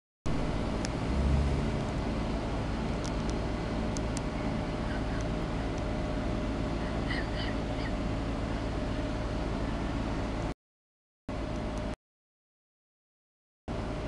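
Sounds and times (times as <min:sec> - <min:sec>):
vehicle engine rumble: 0:00.3 - 0:10.6, 0:11.3 - 0:12.0, 0:13.7 - 0:14.0.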